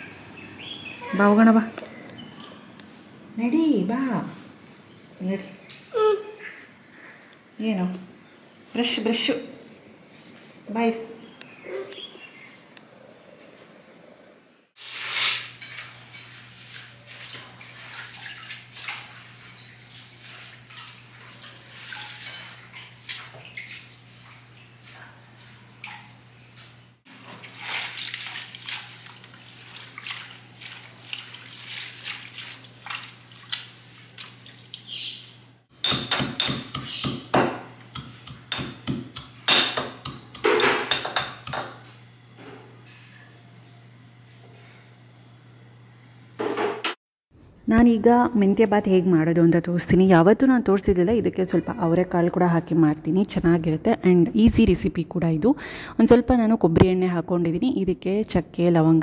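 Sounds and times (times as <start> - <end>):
metal vessels clinking: 35.8 - 41.9.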